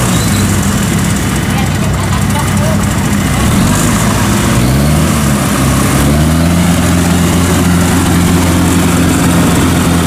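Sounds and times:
tracked machine engine under load: 0.0s - 10.0s
tracks churning through mud: 2.8s - 10.0s.

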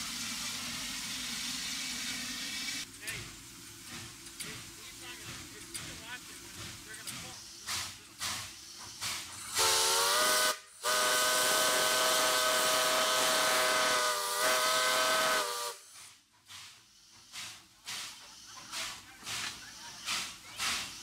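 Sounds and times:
steam hissing: 0.0s - 21.0s
steam locomotive whistle: 9.5s - 15.9s.

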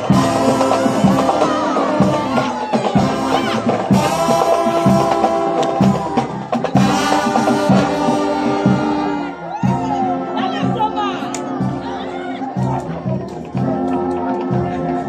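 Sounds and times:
steady drum beat: 0.0s - 11.9s
brass band playing chords: 0.0s - 15.0s.

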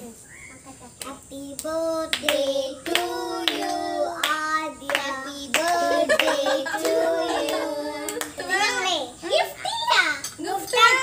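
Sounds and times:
hands clapping: 1.0s - 8.4s
girls and woman singing: 1.0s - 8.8s.

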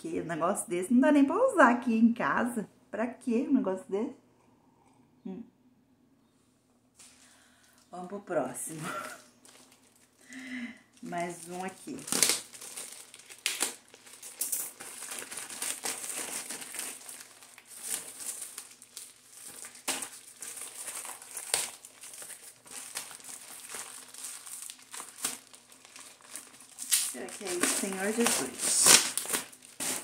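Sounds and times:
packaging crinkling and rustling: 8.8s - 30.0s.

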